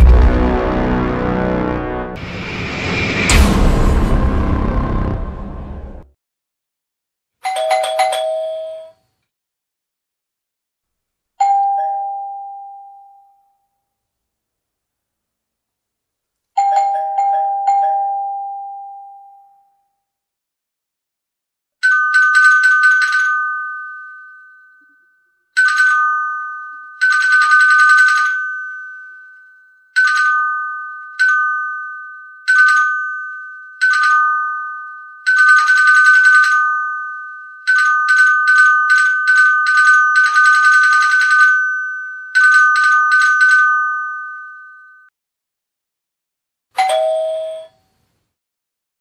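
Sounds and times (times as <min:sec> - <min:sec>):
two-tone doorbell ringing: 0:07.4 - 0:09.0, 0:11.4 - 0:13.8, 0:16.6 - 0:19.9, 0:30.0 - 0:45.1, 0:46.8 - 0:47.8.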